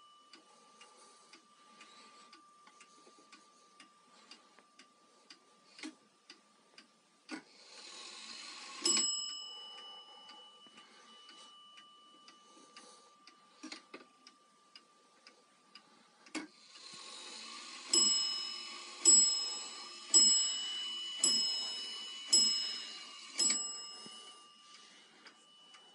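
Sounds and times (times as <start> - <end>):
clock ticking: 0.0 - 25.9
clock striking train whirring: 7.6 - 13.7, 16.6 - 25.9
clock bell striking: 8.4 - 14.5, 17.6 - 25.9.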